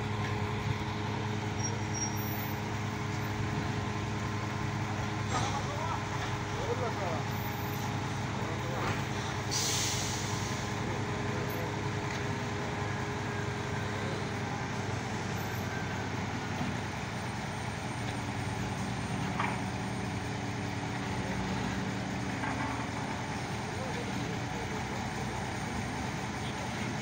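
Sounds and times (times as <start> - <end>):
crane engine running: 0.0 - 27.0
short hiss: 9.5 - 10.6.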